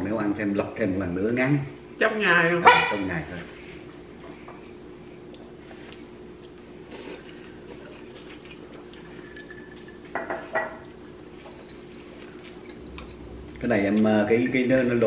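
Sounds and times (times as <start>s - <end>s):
steady low hum: 0.0s - 15.0s
tableware clinking: 9.0s - 10.8s.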